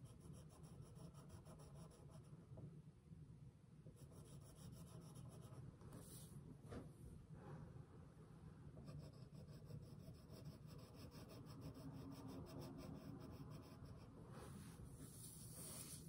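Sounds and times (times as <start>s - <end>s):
pencil scratching on paper: 0.0s - 2.3s, 4.0s - 6.3s, 8.8s - 16.0s.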